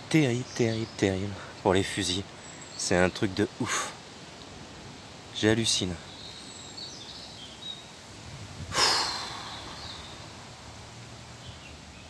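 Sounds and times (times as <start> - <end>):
low steady background noise: 0.0 - 12.0
person huffing breath out: 8.7 - 10.2.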